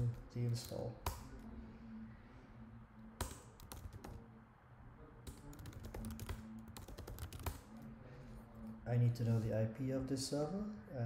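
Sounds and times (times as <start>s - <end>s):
keyboard typing: 3.2s - 4.2s, 5.2s - 7.9s.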